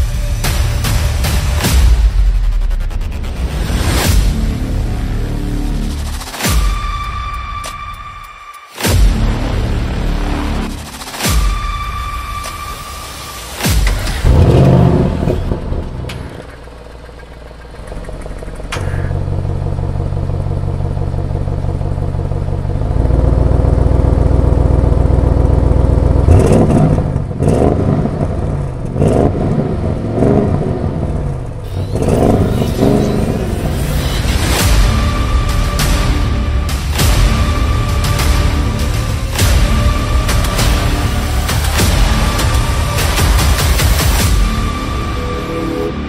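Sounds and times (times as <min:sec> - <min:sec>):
car engine revving: 0:13.6 - 0:46.0
car engine idling: 0:13.7 - 0:46.0.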